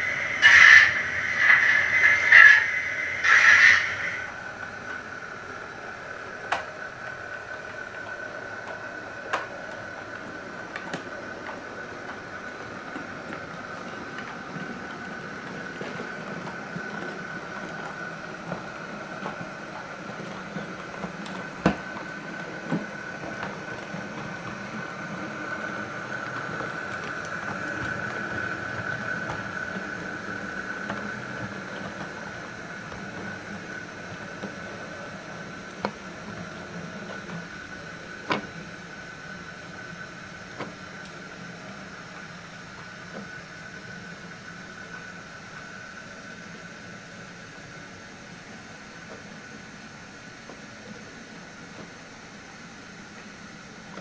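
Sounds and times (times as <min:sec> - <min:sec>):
model train motor whining: 0:00.0 - 0:04.3
wheels clicking on track: 0:00.0 - 0:54.0.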